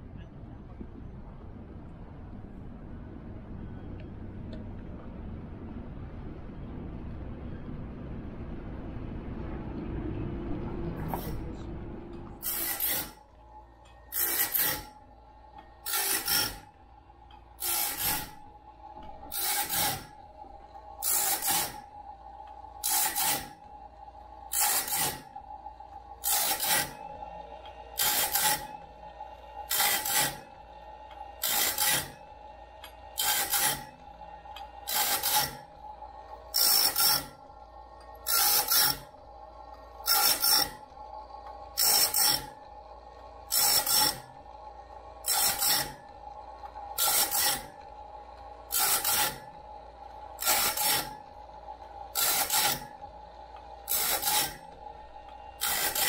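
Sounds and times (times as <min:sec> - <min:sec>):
motor hum: 0:00.0 - 0:56.0
grinding wheel on blade teeth: 0:12.3 - 0:13.2, 0:14.1 - 0:23.7, 0:24.5 - 0:25.4, 0:26.0 - 0:37.5, 0:38.1 - 0:56.0.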